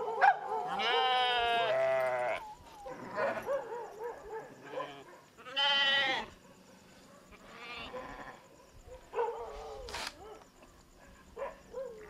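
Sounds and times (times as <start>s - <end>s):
goats bleating: 5.4s - 6.3s.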